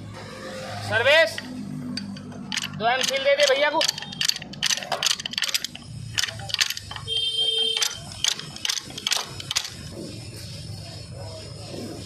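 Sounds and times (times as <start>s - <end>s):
pipe wrench clinking on metal: 1.3s - 9.9s.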